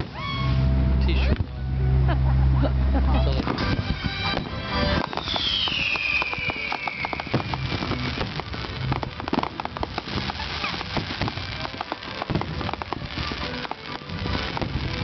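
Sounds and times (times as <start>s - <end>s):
fireworks crackling: 0.0s - 1.6s, 3.0s - 15.0s
fireworks booms: 3.4s - 15.0s.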